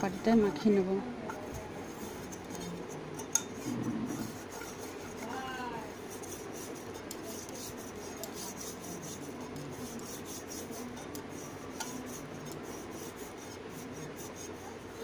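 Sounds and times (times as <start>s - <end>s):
fingers rubbing metal bowl: 0.0s - 15.0s.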